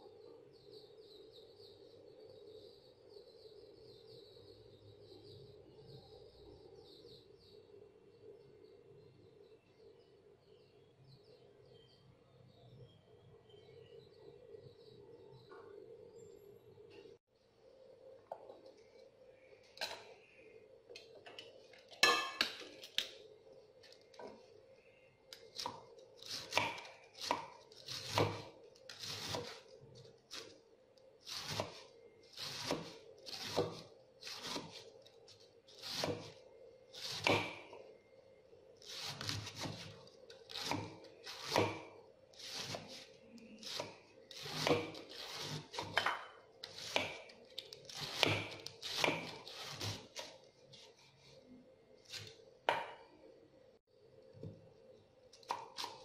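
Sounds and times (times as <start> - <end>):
knife cutting cabbage on board: 25.6 - 29.6, 31.3 - 34.9, 35.7 - 36.4, 37.0 - 37.7, 38.8 - 50.3.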